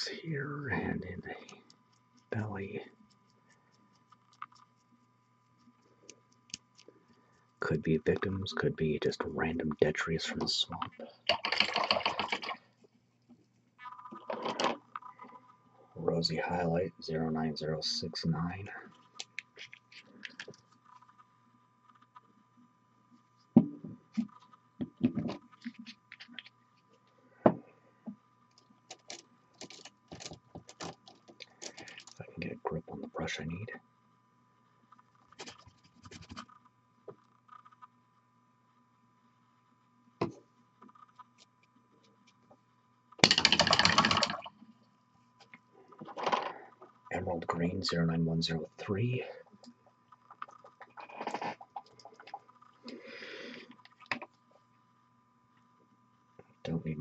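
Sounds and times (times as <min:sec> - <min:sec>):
faint steady hum: 0:00.0 - 0:57.0
painting supplies clicking and knocking: 0:28.9 - 0:32.2, 0:43.2 - 0:44.5
paint bottle rattling when shaken: 0:43.2 - 0:44.5.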